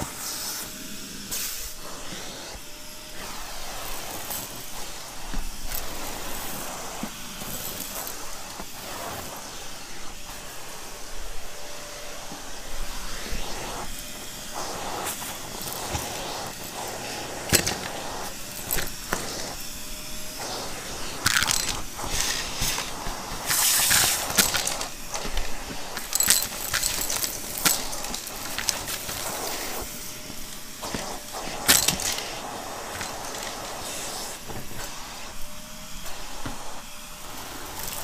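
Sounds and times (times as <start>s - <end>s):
vacuum cleaner suction hiss: 0.0s - 38.0s
debris clicking and rattling: 26.0s - 29.3s, 31.6s - 33.6s.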